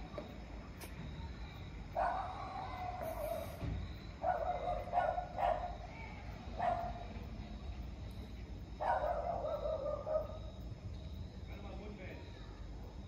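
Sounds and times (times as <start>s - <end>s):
dog barking: 2.0s - 2.5s, 4.2s - 5.8s, 6.6s - 7.0s, 8.8s - 10.4s.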